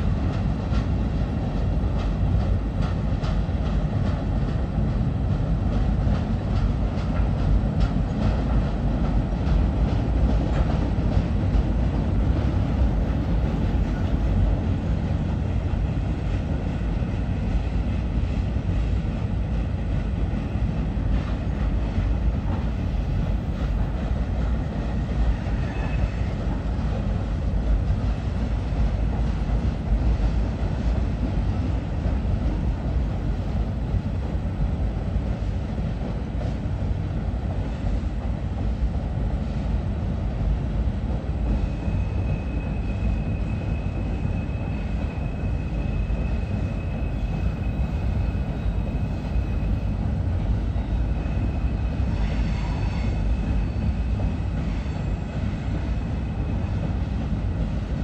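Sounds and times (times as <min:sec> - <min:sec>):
wheels clattering on rails: 0:00.0 - 0:14.8
train rumbling over trestle: 0:00.0 - 0:58.0.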